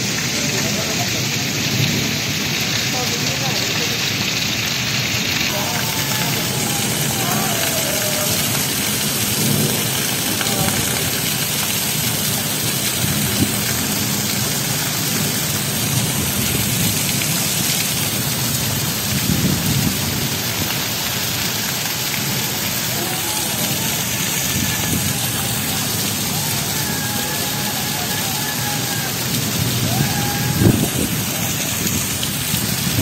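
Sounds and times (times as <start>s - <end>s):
heavy rain pouring: 0.0s - 33.0s.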